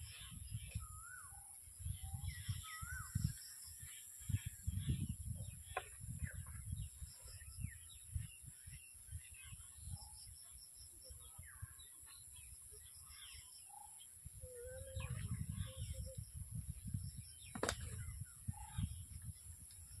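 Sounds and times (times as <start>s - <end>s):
wind rumble on microphone: 0.0s - 13.4s, 14.0s - 20.0s
small birds chirping: 0.0s - 20.0s.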